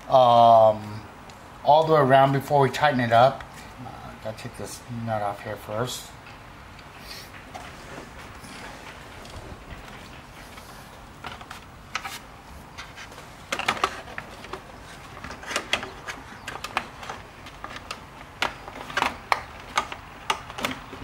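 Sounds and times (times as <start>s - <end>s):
plastic trim clicking and knocking: 13.5s - 21.0s.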